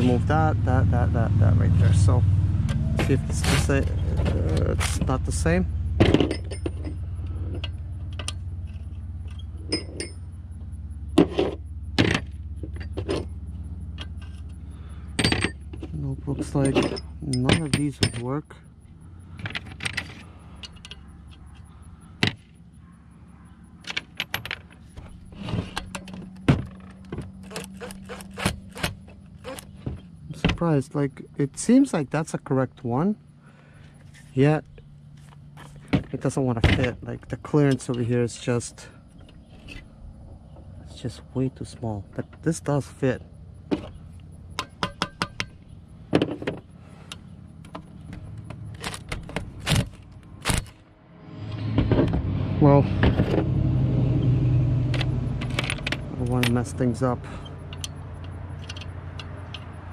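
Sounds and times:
metal tools clicking and clattering: 6.0s - 10.2s, 15.2s - 18.4s, 55.4s - 59.9s
metal sockets clinking: 6.0s - 10.3s, 15.2s - 18.4s, 23.7s - 29.8s, 54.9s - 59.9s.

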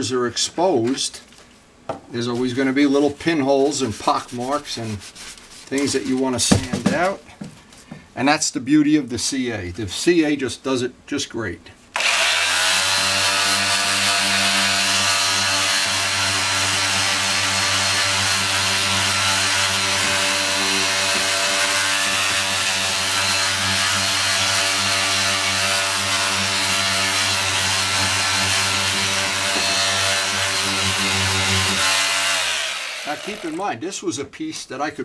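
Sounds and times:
power sander running: 12.0s - 33.6s.

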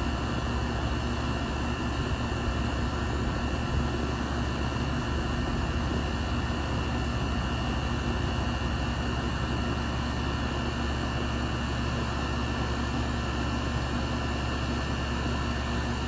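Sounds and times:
air conditioner unit humming: 0.0s - 10.7s.

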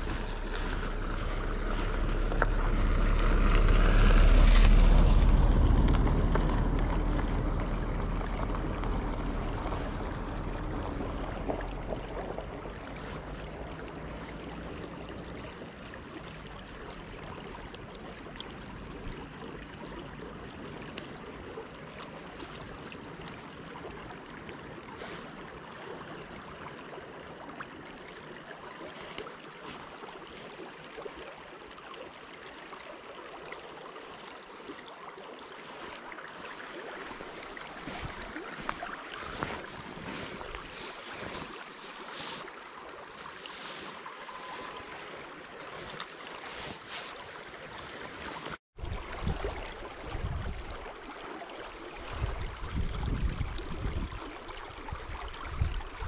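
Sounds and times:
flowing river water: 0.0s - 56.0s
wind: 0.0s - 56.0s
wind buffeting microphone: 37.2s - 41.4s, 48.8s - 50.9s, 51.9s - 56.0s.

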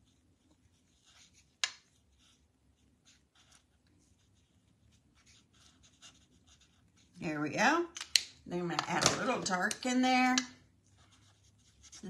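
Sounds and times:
marker tip scratching on card: 4.3s - 6.8s.

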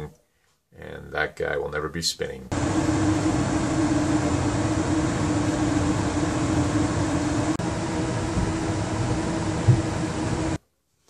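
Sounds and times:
furnace blower air rush and hum: 2.5s - 10.6s.

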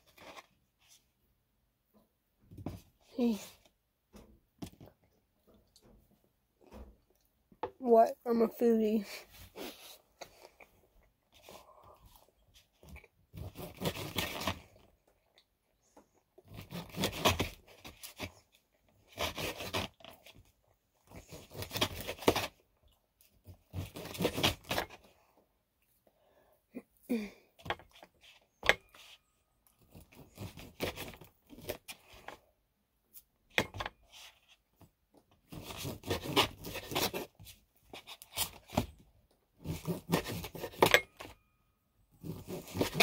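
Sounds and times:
knife sawing sausage on dish: 35.5s - 37.3s, 39.6s - 40.9s, 42.2s - 43.0s.

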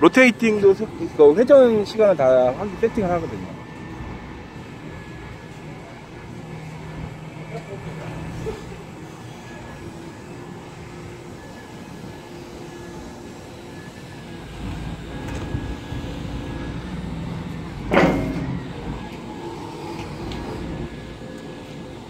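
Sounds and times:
excavator engine and hydraulics: 0.0s - 22.0s
sharp loud clunk: 17.9s - 18.7s.

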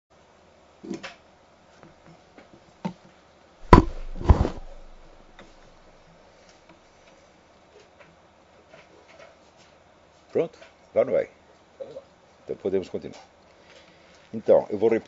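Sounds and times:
rustle: 0.2s - 15.0s
loud thumps on desk: 3.6s - 5.7s.

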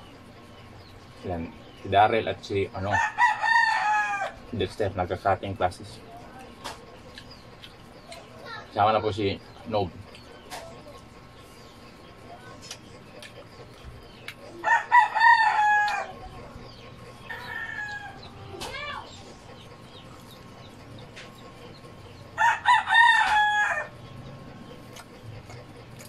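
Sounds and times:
fainter rooster calls: 2.8s - 4.5s, 14.5s - 16.6s, 17.2s - 19.4s, 22.3s - 24.0s
rooster crowing: 2.8s - 4.5s, 14.5s - 16.6s, 17.2s - 19.1s, 22.4s - 24.0s.

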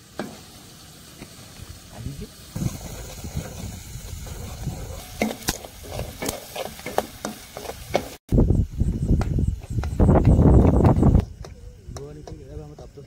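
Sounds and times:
food sizzling: 0.0s - 8.3s.

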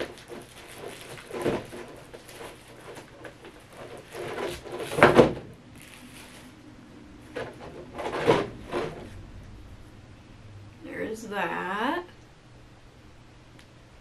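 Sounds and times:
plastic packaging rustling: 0.0s - 9.2s.

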